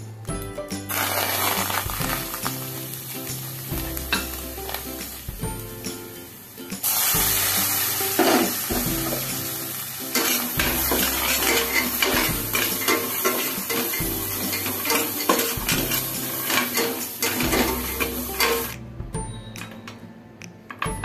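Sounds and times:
light sizzle: 0.0 - 18.8
nuts rattling: 0.9 - 2.6
metal spatula scraping pan: 10.1 - 18.7.

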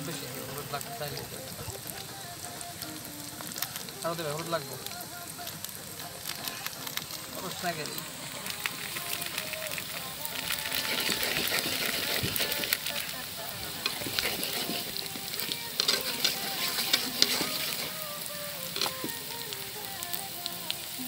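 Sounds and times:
onions sizzling in hot oil: 0.0 - 21.0
metal spatula scraping a pan: 10.6 - 18.0.

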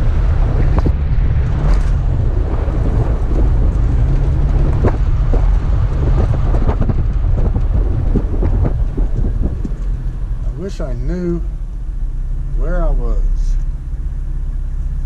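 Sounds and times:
vehicle driving over sand: 0.0 - 11.6
knocks and rattles: 0.4 - 11.0.

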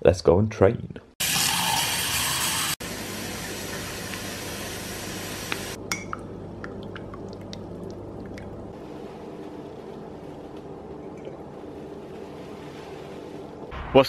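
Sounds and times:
tap water running into a mug: 1.2 - 5.8.

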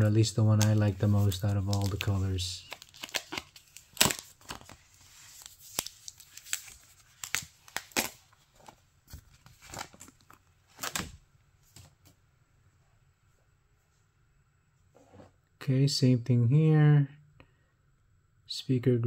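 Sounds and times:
paper tearing and crinkling: 0.6 - 8.2.

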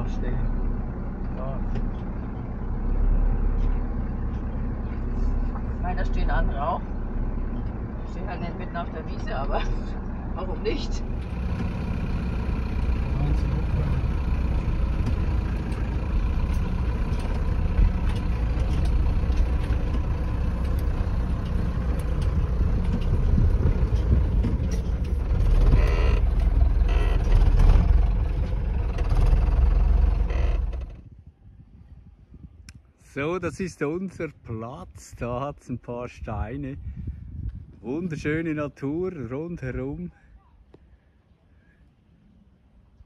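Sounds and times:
diesel engine rumbling: 0.0 - 43.0
rattles and knocks: 14.5 - 31.0.

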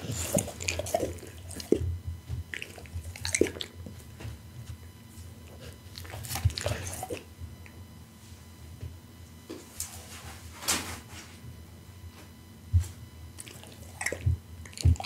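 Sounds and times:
dog licking lips and chewing: 0.1 - 1.9, 2.5 - 3.8, 5.9 - 7.3, 13.4 - 15.0.

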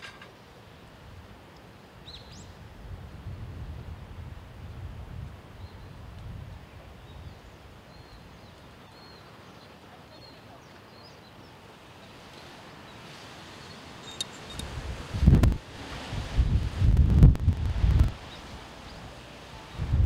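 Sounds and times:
soft steady hiss: 0.0 - 20.0
wind rumble on microphone: 2.1 - 8.7, 14.0 - 20.0
high bird chirps: 13.6 - 14.6.

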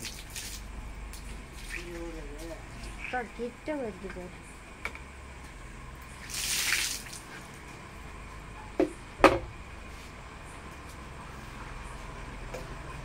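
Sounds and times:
water splashing: 6.2 - 7.3
sharp knocks: 8.8 - 9.5.

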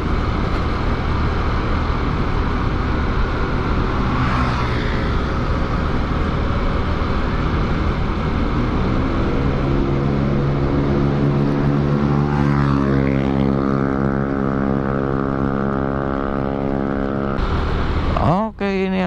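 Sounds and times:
motorbike engine cruising: 0.0 - 18.5.

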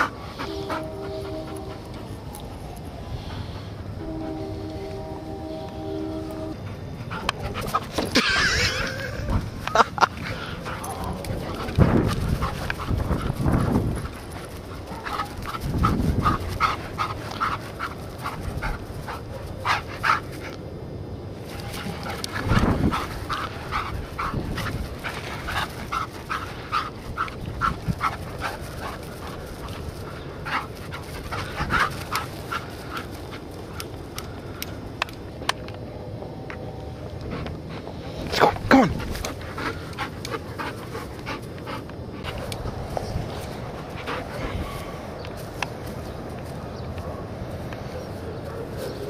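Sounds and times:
low rumbling bumps: 9.2 - 19.3.

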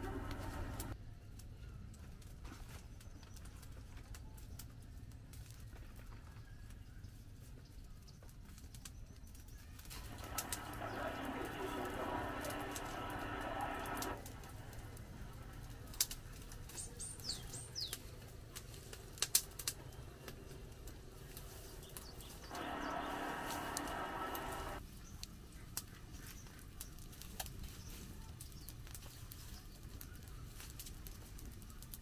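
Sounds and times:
campfire crackling and popping: 0.0 - 1.0, 9.7 - 32.0
steady droning sound: 0.0 - 1.0, 10.0 - 15.6, 22.4 - 24.8
bird chirping: 16.7 - 18.0, 21.6 - 24.8.

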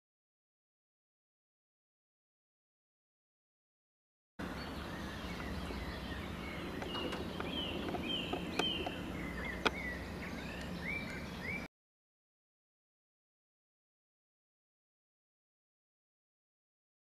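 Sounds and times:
small birds chirping: 4.4 - 11.7.

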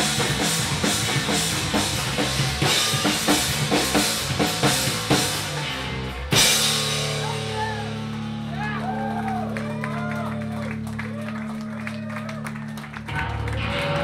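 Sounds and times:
drum kit beating: 0.0 - 10.9
rock duo playing: 0.0 - 14.0.

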